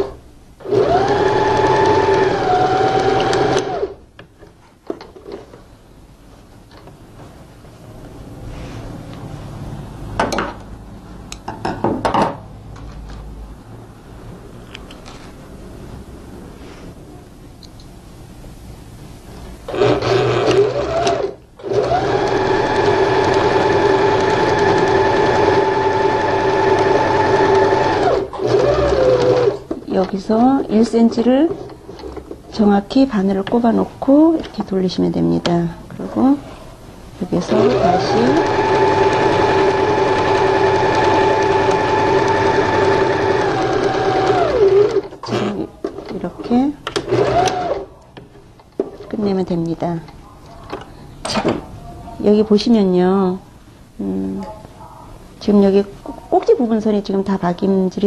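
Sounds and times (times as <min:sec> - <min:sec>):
sewing machine stitching: 0:00.0 - 0:04.0, 0:19.7 - 0:29.7, 0:37.4 - 0:46.3, 0:47.0 - 0:47.9.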